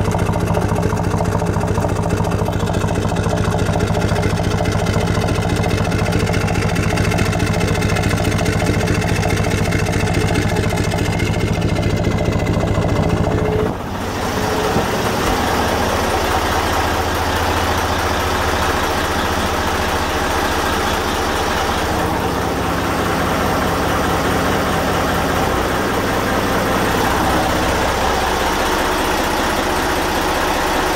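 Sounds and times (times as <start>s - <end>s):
diesel engine running: 0.0s - 30.9s.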